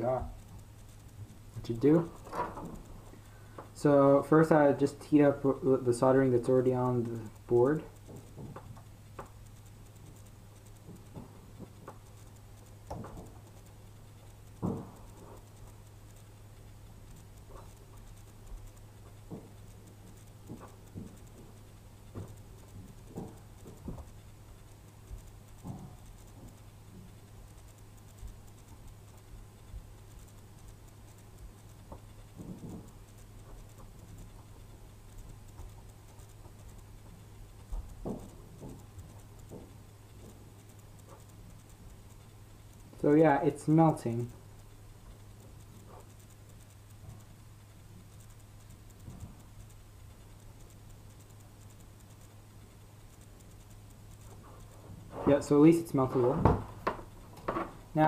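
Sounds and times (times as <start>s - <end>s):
faint clicks and taps: 0.0s - 58.0s
steady low hum: 0.0s - 58.0s.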